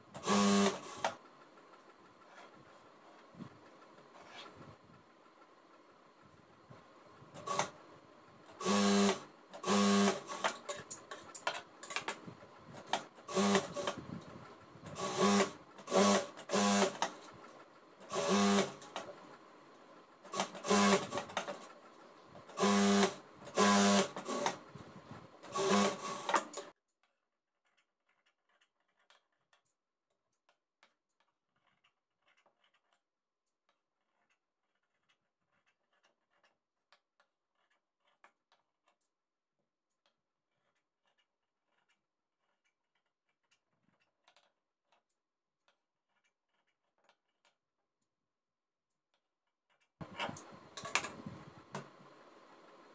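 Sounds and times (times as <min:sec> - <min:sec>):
sewing machine stitching: 0:00.1 - 0:01.2, 0:07.3 - 0:07.8, 0:08.5 - 0:19.3, 0:20.3 - 0:24.8, 0:25.4 - 0:26.7.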